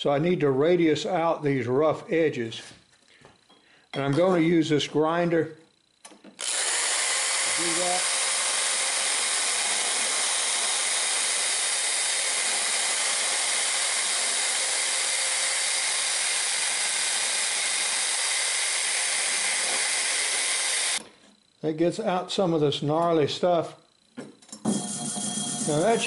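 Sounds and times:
grinder grinding metal pipe: 6.4s - 21.1s, 24.6s - 26.0s.

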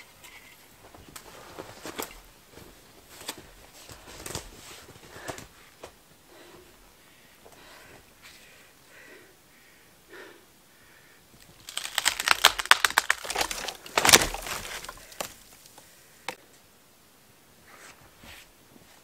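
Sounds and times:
dry branches cracking and snapping: 11.4s - 16.4s.

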